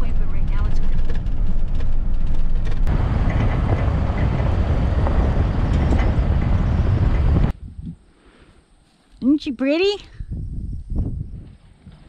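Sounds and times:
truck driving on gravel road: 0:00.0 - 0:07.5
wind noise: 0:00.0 - 0:08.8, 0:09.7 - 0:12.0.

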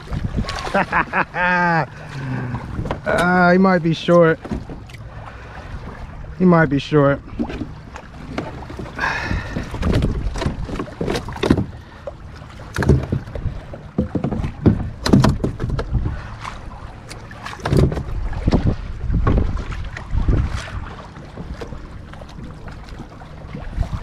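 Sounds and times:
wind rumble on microphone: 0:00.0 - 0:01.4, 0:02.1 - 0:03.4, 0:09.0 - 0:11.7, 0:12.7 - 0:16.9, 0:17.6 - 0:24.0
fishing gear knocking on kayak: 0:12.8 - 0:16.0.

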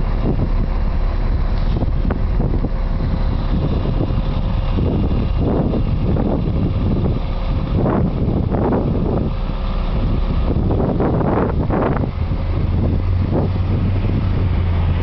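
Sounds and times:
bus diesel engine running: 0:00.0 - 0:15.0
wind rumble on microphone: 0:00.0 - 0:15.0.

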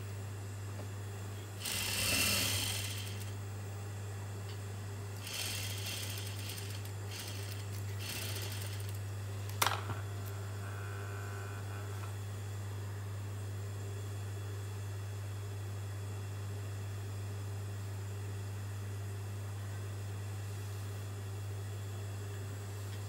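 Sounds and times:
sewing machine stitching: 0:01.6 - 0:03.3, 0:05.2 - 0:09.0
sewing machine motor humming: 0:01.6 - 0:03.4, 0:05.2 - 0:09.0.

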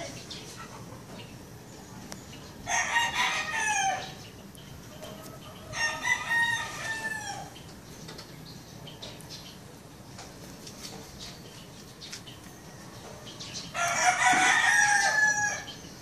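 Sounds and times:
rooster crowing: 0:02.6 - 0:04.2, 0:05.7 - 0:07.5, 0:13.7 - 0:15.8.

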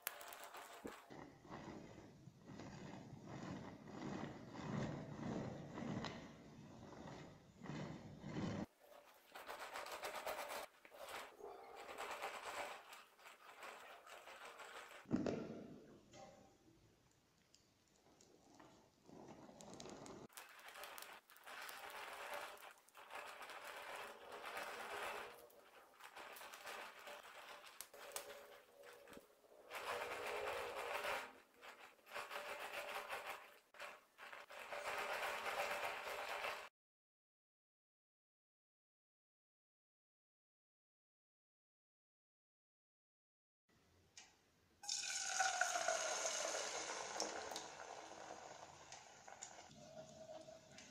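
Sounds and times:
metal spatula scraping cream: 0:00.0 - 0:15.1, 0:19.0 - 0:36.7.

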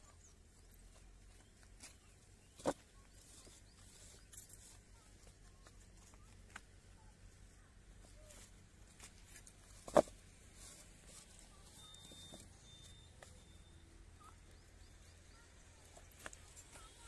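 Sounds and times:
bricks tapping and scraping: 0:09.8 - 0:10.2.

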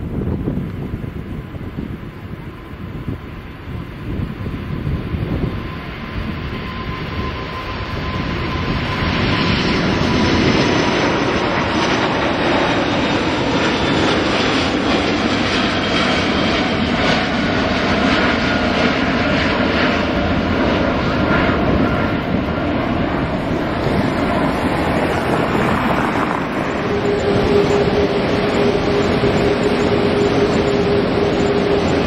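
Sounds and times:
jet engines at takeoff thrust: 0:00.0 - 0:32.0.

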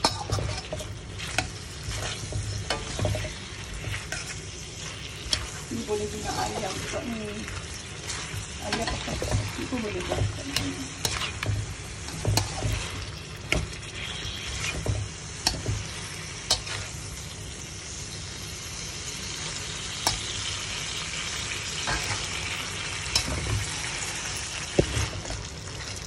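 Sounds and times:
spatula tapping and scraping pan: 0:00.0 - 0:05.6, 0:08.0 - 0:16.9
food sizzling in a pan: 0:00.0 - 0:26.0.

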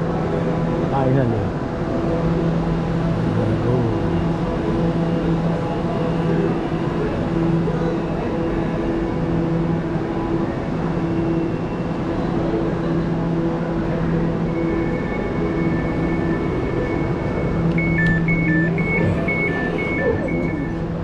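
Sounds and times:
two-pitch beeps: 0:17.8 - 0:20.9
high electronic tone: 0:17.8 - 0:21.0.

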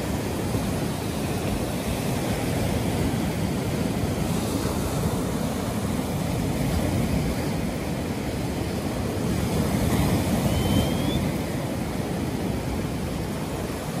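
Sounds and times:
waves breaking on shore: 0:00.0 - 0:14.0
faint rising whistle: 0:10.2 - 0:11.5.

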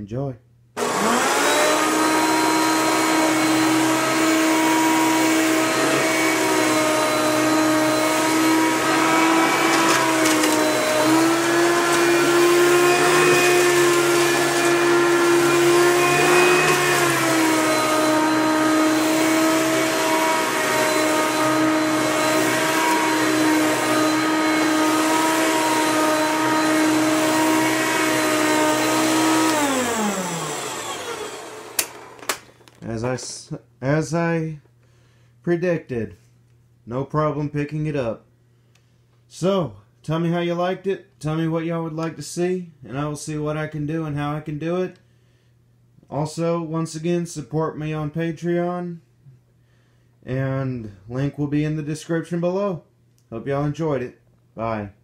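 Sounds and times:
vacuum cleaner motor whine: 0:00.8 - 0:32.8.

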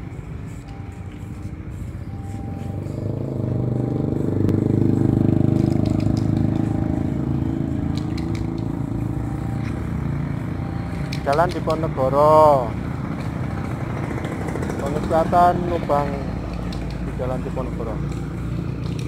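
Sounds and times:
vehicle engine running: 0:00.0 - 0:19.0
light clicks: 0:16.5 - 0:17.1.

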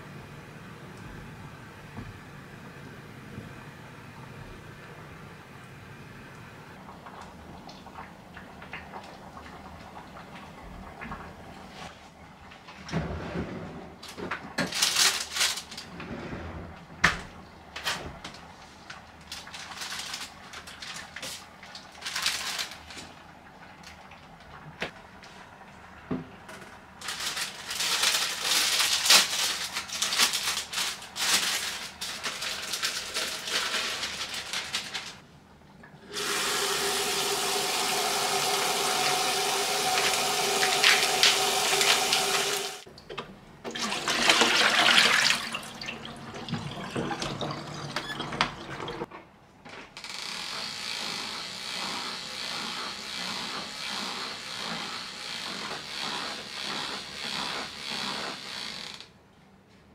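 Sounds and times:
plastic pack rustling: 0:14.0 - 0:16.0, 0:17.8 - 0:23.2, 0:27.0 - 0:35.2
tap water running onto leaves: 0:27.0 - 0:35.2, 0:36.1 - 0:42.9.

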